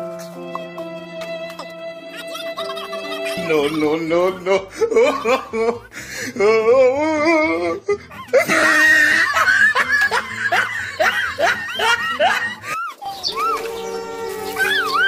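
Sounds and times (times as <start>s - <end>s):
high-pitched squeaky laughter: 2.0s - 5.9s, 7.3s - 15.0s.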